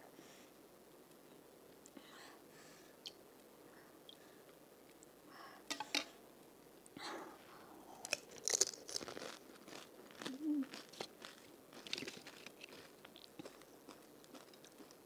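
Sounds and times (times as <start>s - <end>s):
crunching and chewing: 7.9s - 15.0s
crisp shells cracking: 8.0s - 15.0s.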